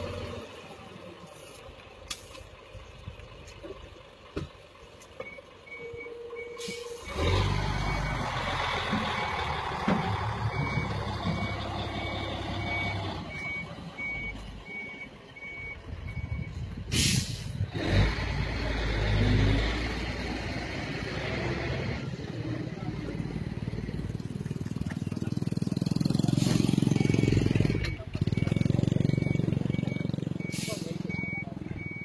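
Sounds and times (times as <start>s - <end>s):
diesel engine running: 0.0s - 32.0s
truck warning beeper: 5.2s - 17.6s, 25.2s - 32.0s
air hiss burst: 16.9s - 17.6s.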